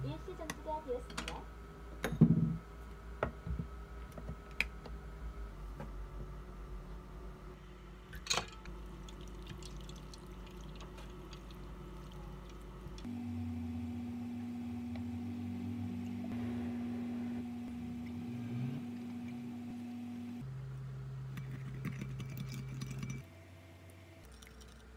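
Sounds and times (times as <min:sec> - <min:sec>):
steady hum: 0:00.0 - 0:24.2
water pouring and splashing: 0:08.7 - 0:12.9.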